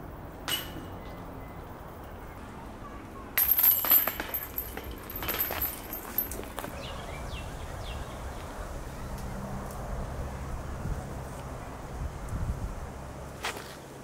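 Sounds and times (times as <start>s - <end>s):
metal chains jingling: 3.4s - 6.7s.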